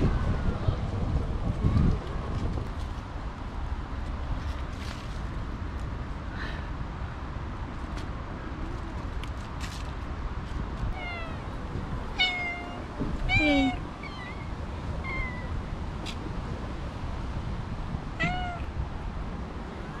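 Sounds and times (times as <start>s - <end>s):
cat meowing: 11.0s - 11.5s, 12.1s - 15.6s, 18.2s - 18.7s.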